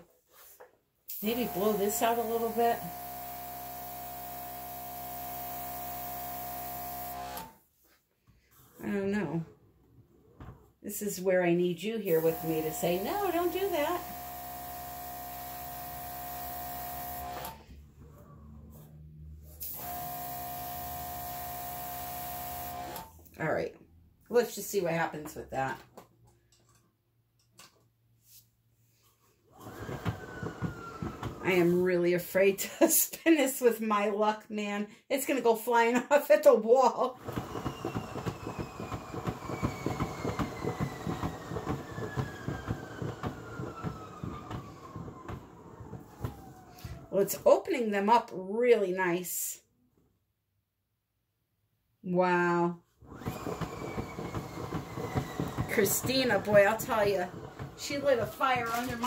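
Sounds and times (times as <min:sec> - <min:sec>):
compressor motor humming: 0:01.1 - 0:07.5, 0:12.1 - 0:17.6, 0:19.6 - 0:23.1, 0:37.2 - 0:47.1, 0:53.1 - 0:59.0.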